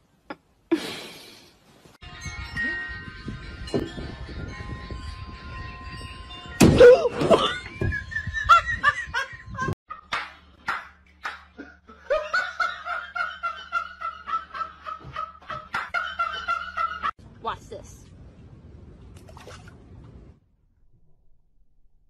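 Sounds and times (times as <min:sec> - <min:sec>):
people laughing: 0:11.2 - 0:17.1.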